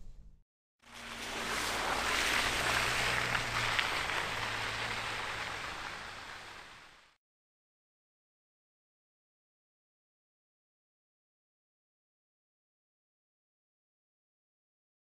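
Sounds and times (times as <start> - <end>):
low engine hum: 0.0 - 7.1
water splashes: 0.8 - 7.2
tyres hissing through wet mud: 0.9 - 7.2.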